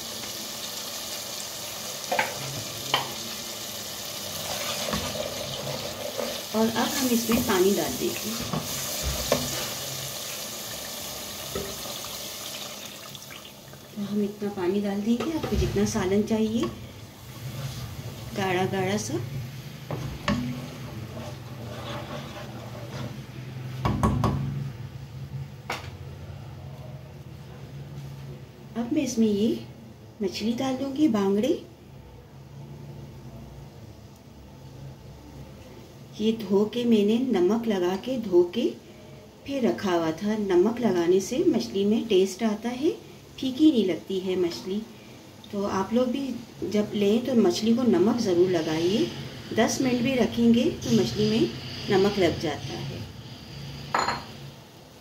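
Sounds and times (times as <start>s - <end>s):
masala sizzling in oil: 0.0s - 23.9s, 35.8s - 55.0s
spoon stirring curry in pan: 20.0s - 23.3s.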